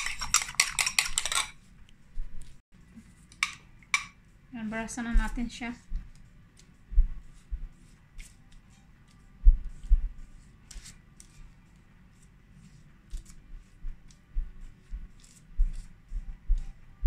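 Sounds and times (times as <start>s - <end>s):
dull low thumps: 6.9s - 7.7s
pastry brush swishes: 12.1s - 16.8s.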